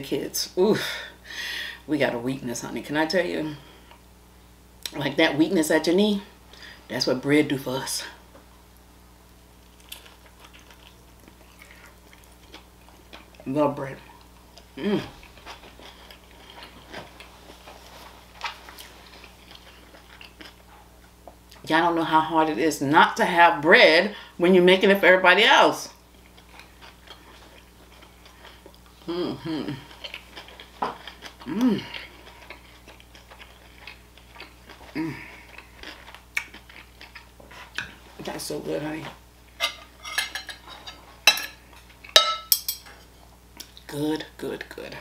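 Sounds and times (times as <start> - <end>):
person chewing food: 9.6 - 13.5, 14.1 - 21.6, 26.1 - 38.1
person humming falling in pitch: 14.8 - 15.2, 29.1 - 29.8.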